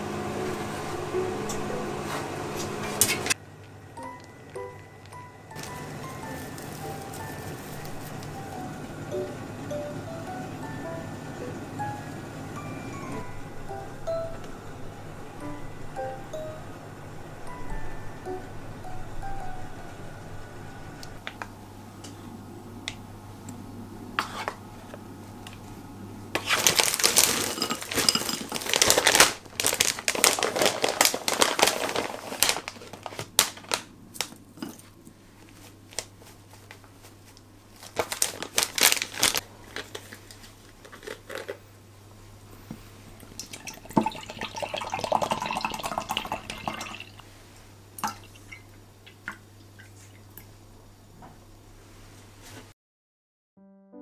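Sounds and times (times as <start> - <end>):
snack bag crinkling: 4.0 - 8.7, 26.4 - 34.5, 37.8 - 41.6.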